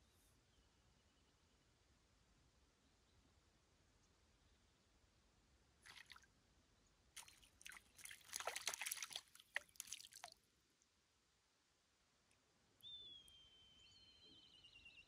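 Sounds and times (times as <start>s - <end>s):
fish splashing at water surface: 5.9s - 6.2s, 7.2s - 10.4s
water dripping: 5.9s - 6.2s, 7.2s - 10.4s.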